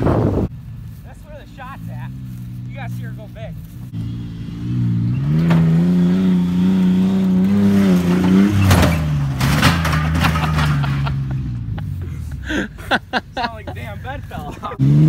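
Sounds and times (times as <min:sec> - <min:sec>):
truck engine revving: 0:01.4 - 0:15.0
truck landing thuds and rattles: 0:04.9 - 0:11.8.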